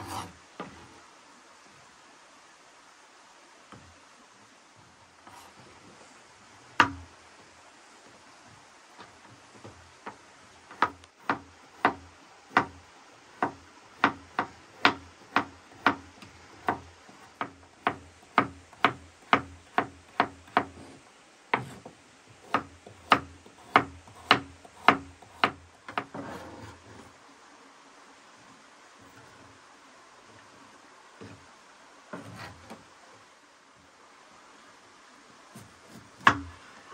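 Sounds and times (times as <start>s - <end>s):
knife chopping on wooden board: 13.4s - 21.0s, 21.6s - 26.1s.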